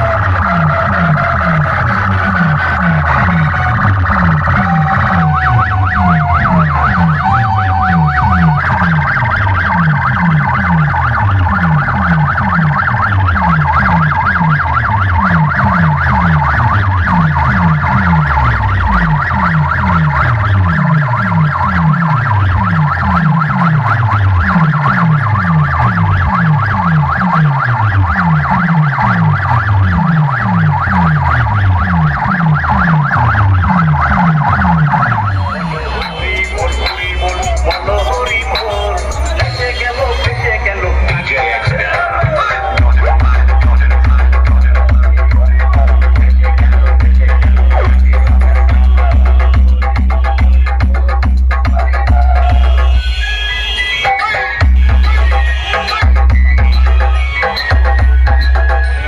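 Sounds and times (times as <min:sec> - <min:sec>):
wavering high tone: 0:00.0 - 0:21.8, 0:32.8 - 0:43.7, 0:51.8 - 0:59.0.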